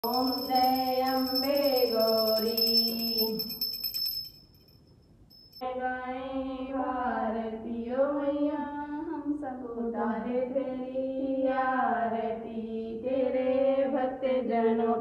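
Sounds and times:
women singing a hymn: 0.0s - 3.4s, 5.6s - 15.0s
handheld bell ringing rapidly: 0.0s - 5.6s.

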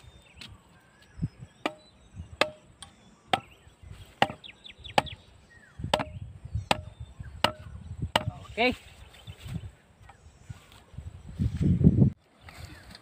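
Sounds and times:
stake hammered into ground: 1.6s - 3.6s, 4.2s - 8.5s.

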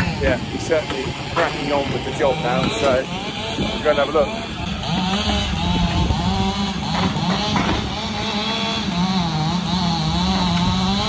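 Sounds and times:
excavator diesel engine running: 0.0s - 11.0s
knocks: 6.9s - 7.9s.

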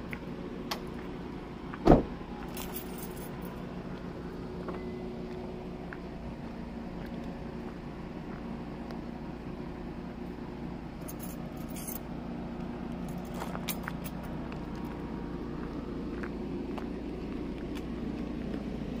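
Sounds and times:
car engine and tyres hum: 0.0s - 19.0s
loud thump: 1.9s - 2.1s.

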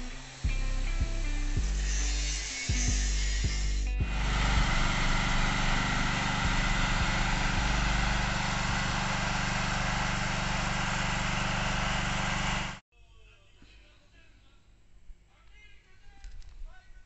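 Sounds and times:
small engine running: 0.0s - 12.8s.

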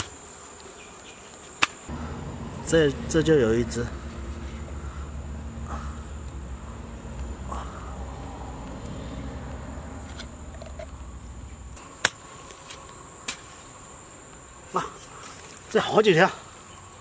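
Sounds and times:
low rumble: 1.9s - 11.8s.

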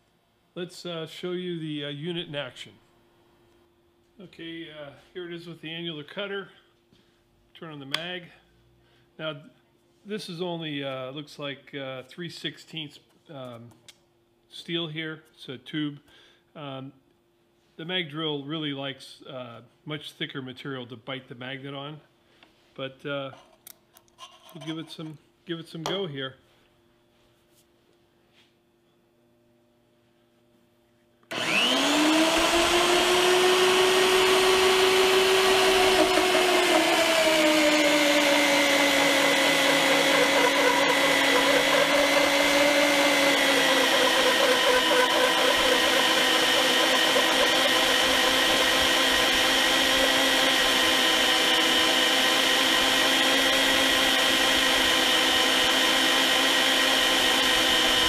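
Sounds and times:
drill cutting into steel: 31.3s - 58.0s
magnetic drill motor whining: 31.3s - 58.0s.

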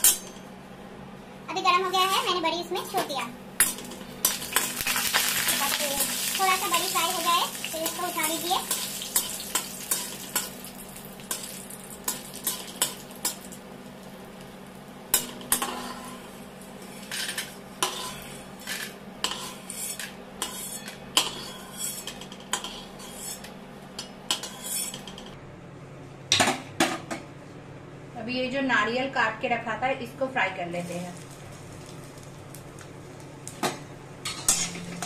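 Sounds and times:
steady low hum: 0.0s - 35.0s
oil sizzling: 1.8s - 25.2s
metal spoon scraping and clinking: 16.8s - 25.3s.

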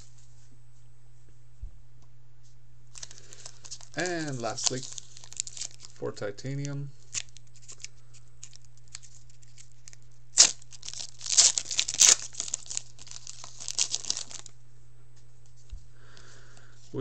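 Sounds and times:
wrapper tearing and crinkling: 2.9s - 6.0s, 7.1s - 14.5s.

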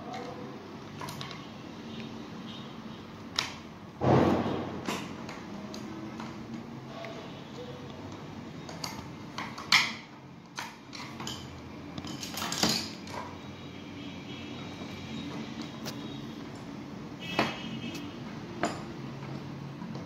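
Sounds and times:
heavy thump: 4.0s - 4.9s
tools clicking and knocking: 4.8s - 6.7s, 8.1s - 13.4s, 15.2s - 20.0s.

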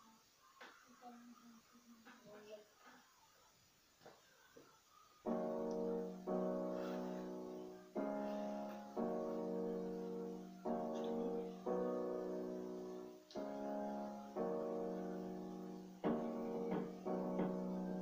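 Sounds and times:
slow piano chords: 5.2s - 18.0s.

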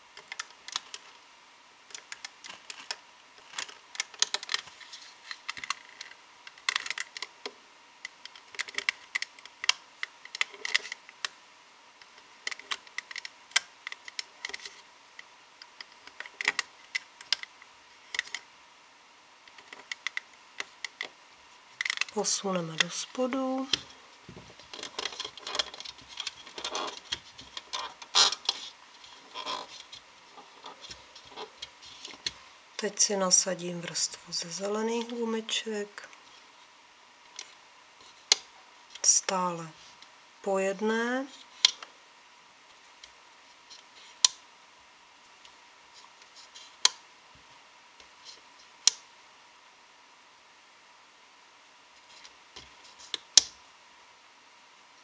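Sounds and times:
rubber bands clicking and scraping: 0.1s - 1.2s, 1.9s - 11.4s, 12.0s - 18.5s, 21.8s - 32.4s.

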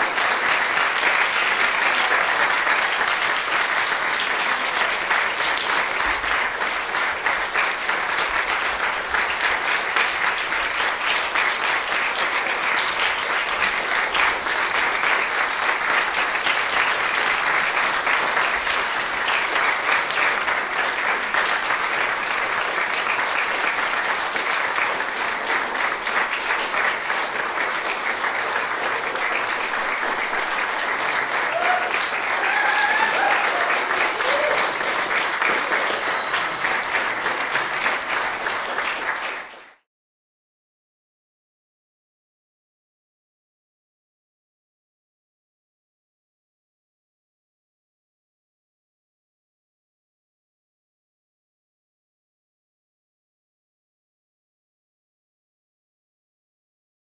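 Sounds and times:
audience applauding: 0.0s - 39.8s.

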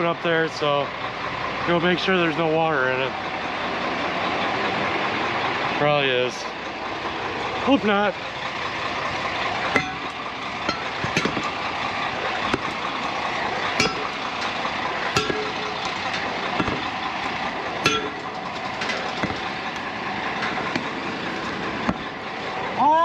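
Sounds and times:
engine idling: 0.0s - 23.0s
sharp metallic clanks: 9.1s - 22.7s.

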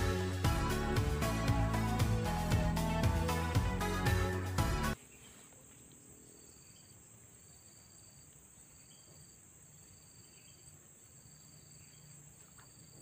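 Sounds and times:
steady high drone: 0.0s - 5.0s
faint insect trills: 5.0s - 13.0s.

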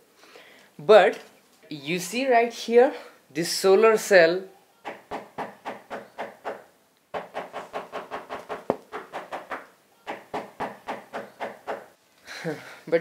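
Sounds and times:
hand slapping solar panel: 4.9s - 11.9s.

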